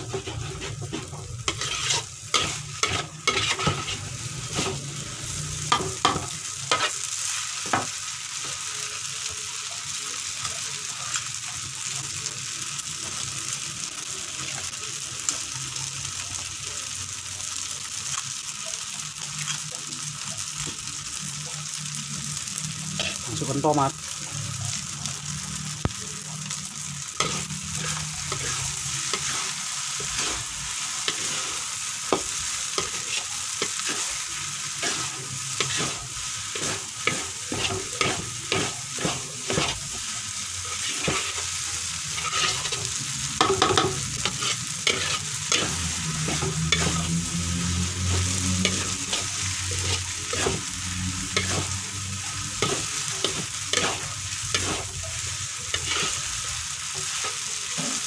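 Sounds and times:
noodles sizzling in a wok: 0.0 - 58.0
metal spatula clacking on pan: 43.4 - 44.4.

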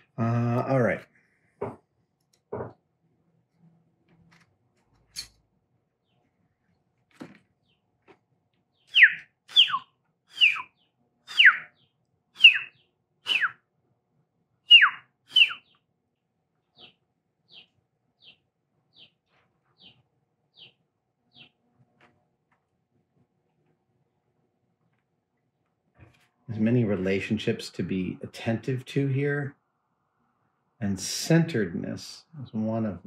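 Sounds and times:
man whistling: 8.9 - 10.6, 11.3 - 11.6, 12.4 - 12.7, 13.3 - 13.6, 14.7 - 15.6.

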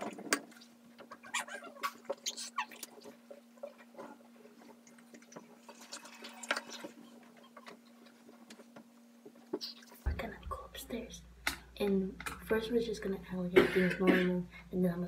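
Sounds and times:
steady low hum: 7.1 - 15.0.

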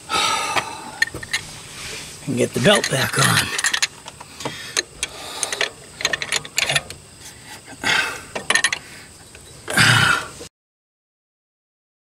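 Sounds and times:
clicks and clanks of engine work: 0.5 - 1.5, 2.4 - 9.8
metal clatter: 1.0 - 1.4, 2.6 - 4.2, 4.8 - 7.0, 8.4 - 9.6.

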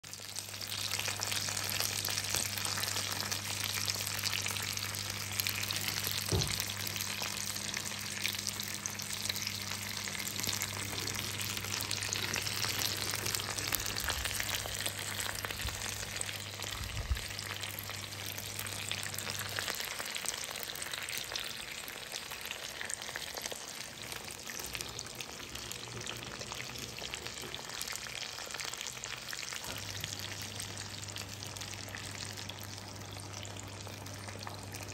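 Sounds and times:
meat sizzling in hot oil: 0.0 - 34.9.

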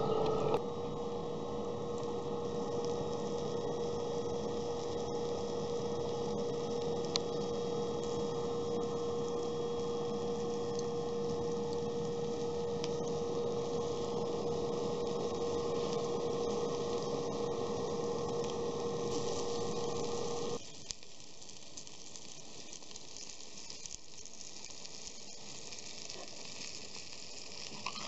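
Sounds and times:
fan humming with air hiss: 0.0 - 20.7.

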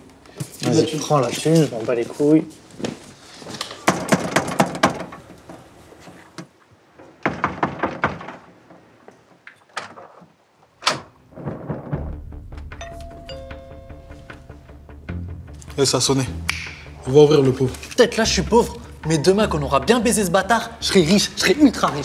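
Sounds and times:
sharp knocks: 3.8 - 5.2, 7.2 - 10.0
scattered thunks: 10.8 - 12.8
low music: 11.9 - 22.0.

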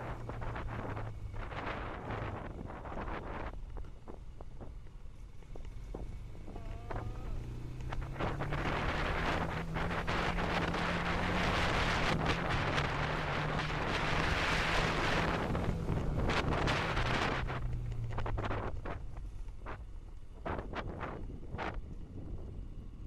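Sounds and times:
motorcycle engine running: 0.0 - 23.0
wind buffeting microphone: 0.0 - 23.0.

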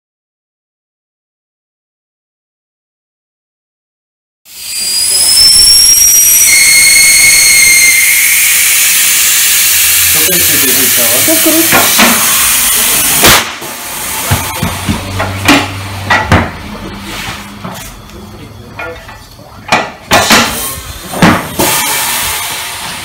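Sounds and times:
whistle of escaping air: 4.5 - 13.6, 21.6 - 23.0
air hissing out of tyre: 4.5 - 14.3, 20.4 - 23.0.

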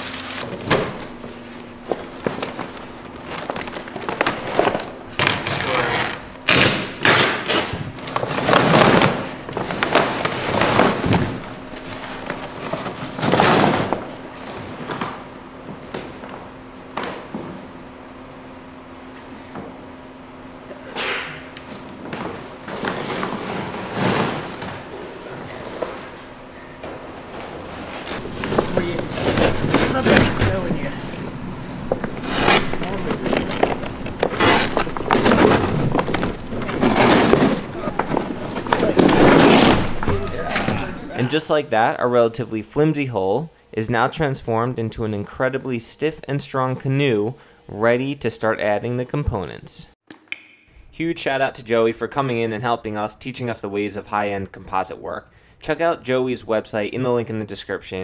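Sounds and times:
plastic film tearing and crinkling: 0.0 - 11.4, 28.1 - 31.2, 31.8 - 41.0.

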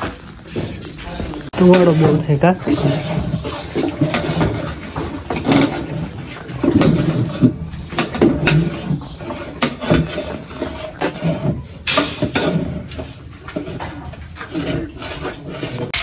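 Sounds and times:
metal ladle scraping pot: 0.0 - 16.0
ladle clattering against pot: 1.6 - 12.9.

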